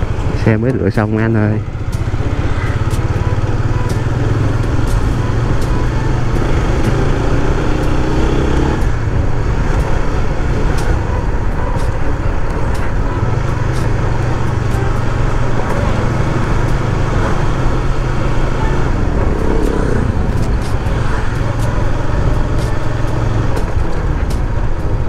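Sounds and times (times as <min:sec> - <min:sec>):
motorcycle engine running: 0:00.0 - 0:25.0
tyre and wind noise: 0:00.0 - 0:25.0.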